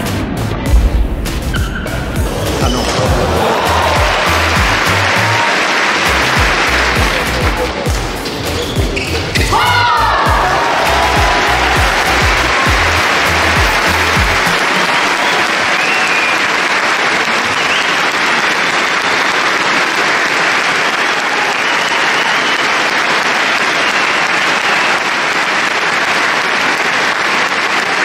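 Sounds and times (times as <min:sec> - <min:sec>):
arena crowd applauding: 0:02.3 - 0:28.0.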